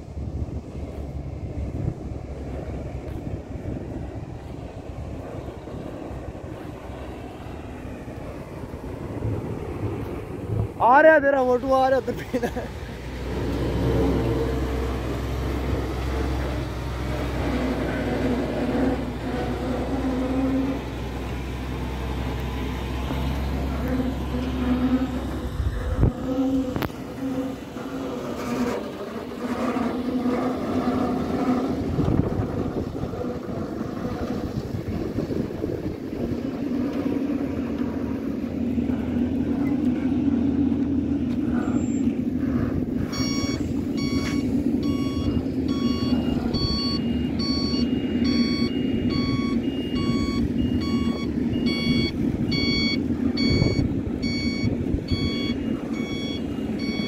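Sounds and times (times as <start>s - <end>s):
truck diesel engine running: 0.0s - 57.0s
reversing alarm beeping: 43.0s - 57.0s.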